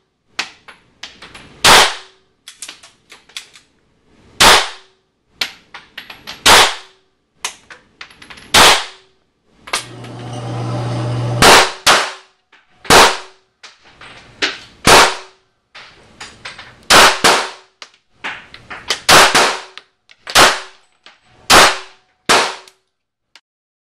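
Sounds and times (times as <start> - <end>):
steady hum: 9.8 - 11.9.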